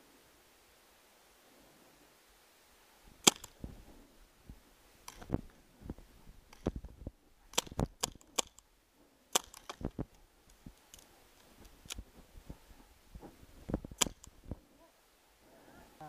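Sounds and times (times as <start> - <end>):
paintball gun pops: 3.2 - 3.6, 7.5 - 8.6, 9.3 - 10.1, 14.0 - 14.3.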